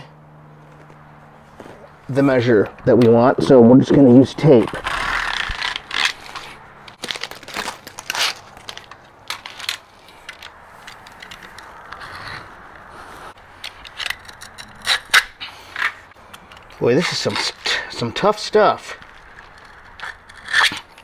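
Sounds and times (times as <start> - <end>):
utility knife cutting rubber: 4.6 - 6.6.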